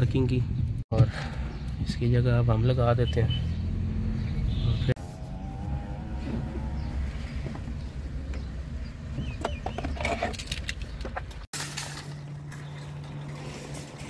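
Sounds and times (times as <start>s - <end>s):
keys jingling: 10.0s - 11.5s.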